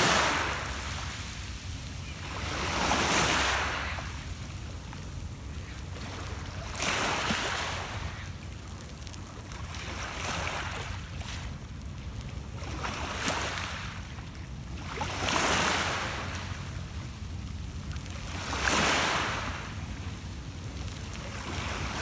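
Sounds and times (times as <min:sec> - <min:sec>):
waves washing over pebbles: 0:00.0 - 0:22.0.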